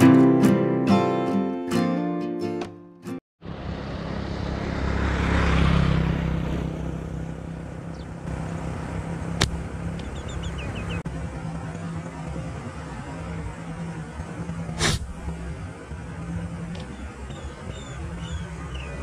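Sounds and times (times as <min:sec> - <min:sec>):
low engine hum: 0:03.4 - 0:19.0
vehicle passing: 0:03.4 - 0:19.0
sharp snap: 0:09.4 - 0:10.1, 0:14.8 - 0:15.1
high bird chirps: 0:10.0 - 0:11.0, 0:16.9 - 0:19.0.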